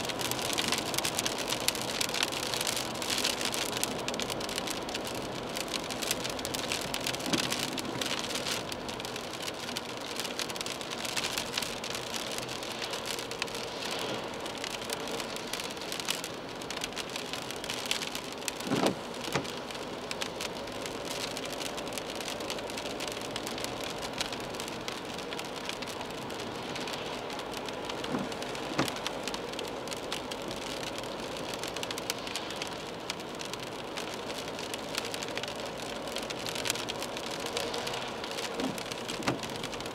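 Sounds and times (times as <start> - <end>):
rain pattering on car: 0.0 - 39.9
tyres hissing on wet road: 0.0 - 39.9
windscreen wiper swish: 18.5 - 19.7, 27.9 - 29.1, 37.0 - 39.9.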